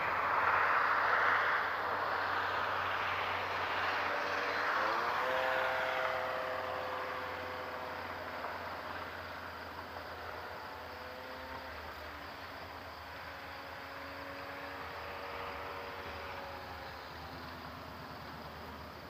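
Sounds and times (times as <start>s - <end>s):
rushing propeller noise: 0.0s - 19.0s
electric motor whine: 3.7s - 12.3s.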